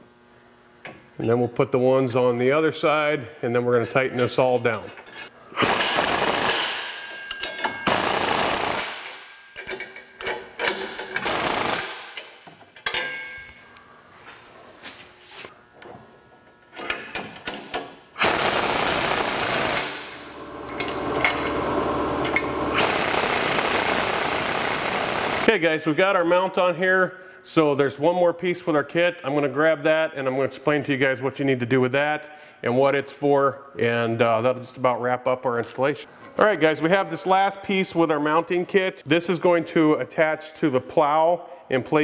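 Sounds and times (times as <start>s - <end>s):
pneumatic impact wrench hammering: 5.5s - 12.6s, 16.8s - 25.5s.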